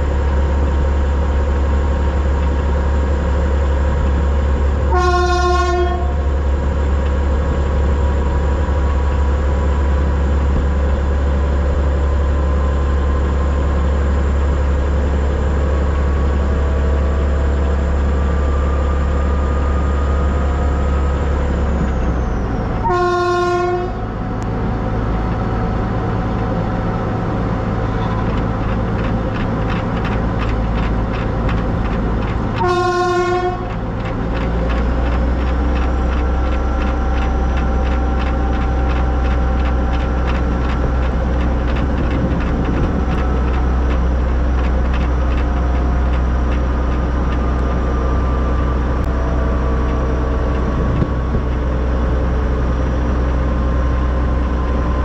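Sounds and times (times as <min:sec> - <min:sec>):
steam locomotive rumble: 0:00.0 - 0:55.0
steam locomotive whistle: 0:04.9 - 0:06.2, 0:22.8 - 0:24.0, 0:32.6 - 0:33.7.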